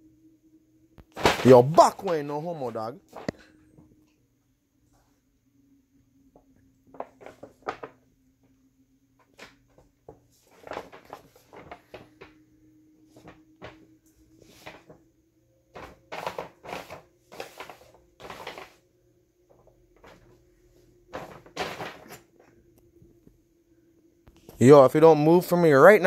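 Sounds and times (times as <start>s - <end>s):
faint steady hum: 0.0s - 26.0s
paper bags rustling: 1.0s - 3.5s, 6.8s - 8.1s, 9.2s - 12.4s, 13.0s - 15.0s, 15.7s - 18.8s, 19.5s - 22.5s.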